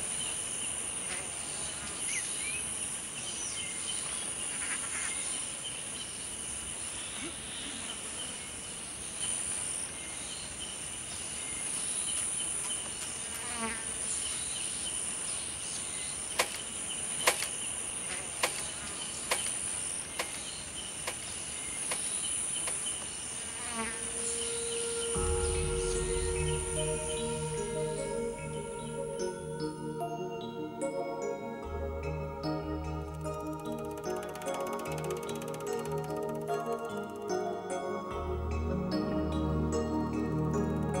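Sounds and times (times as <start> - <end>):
insect pulsing chirp: 15.6 - 29.8
sharp clicks: 16.4 - 17.6, 18.4 - 23.0, 33.1 - 37.3
insect high trill: 23.4 - 30.2.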